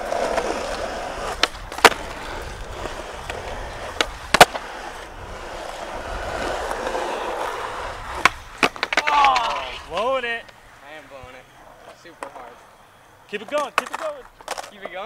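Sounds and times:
skateboard clacking: 0:00.0 - 0:11.0, 0:11.6 - 0:15.0
skateboard wheels rolling on asphalt: 0:00.0 - 0:15.0.

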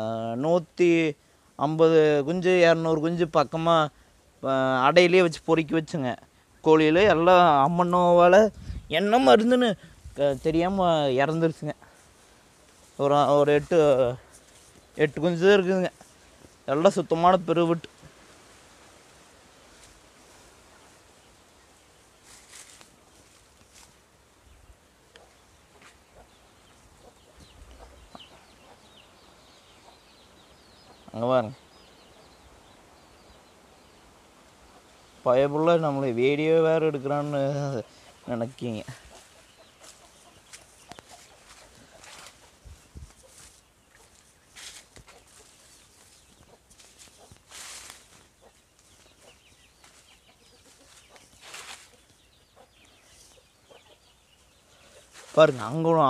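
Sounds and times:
chickens peeping and clucking: 0:19.8 - 0:56.0.

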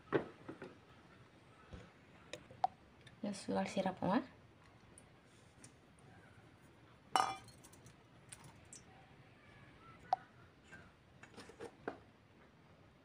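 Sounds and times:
kitchen utensils and bowls clinking: 0:07.2 - 0:07.8.

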